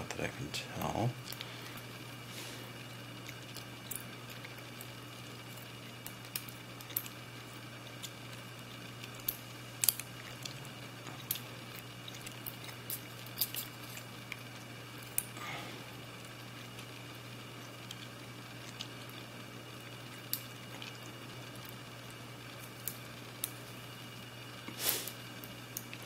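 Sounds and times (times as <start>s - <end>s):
steady low hum: 0.0s - 26.0s.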